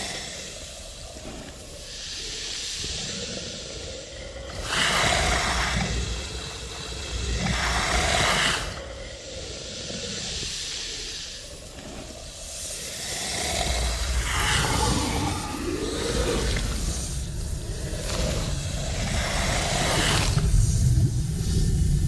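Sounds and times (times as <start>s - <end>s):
serpent hissing: 0.0s - 22.0s
low rumble: 11.9s - 22.0s.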